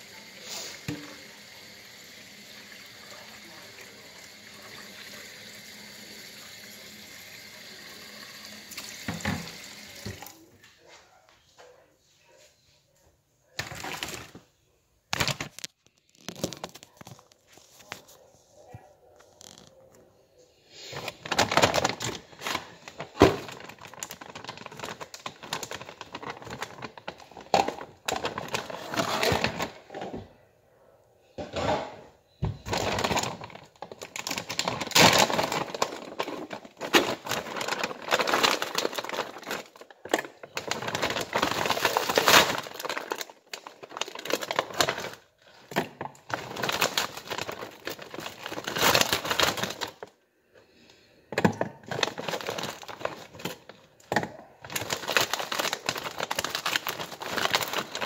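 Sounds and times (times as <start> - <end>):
plastic bag crinkling: 13.6 - 14.4, 15.1 - 18.2, 20.9 - 29.8, 32.6 - 50.1, 51.8 - 58.0.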